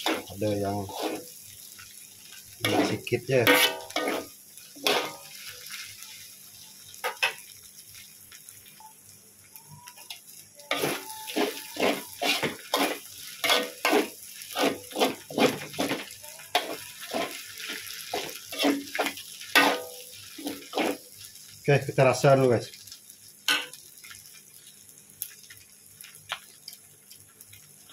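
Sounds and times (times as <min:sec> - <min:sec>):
metal spatula scraping a wok: 0:00.0 - 0:01.3, 0:02.6 - 0:05.5, 0:10.7 - 0:21.1
faint frying sizzle: 0:00.0 - 0:27.9.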